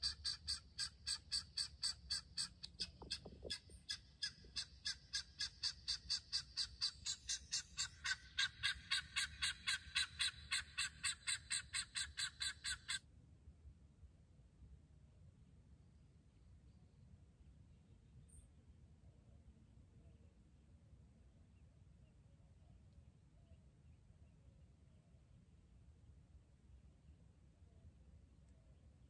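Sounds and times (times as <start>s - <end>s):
recorded guineafowl cackle: 0.0s - 13.0s.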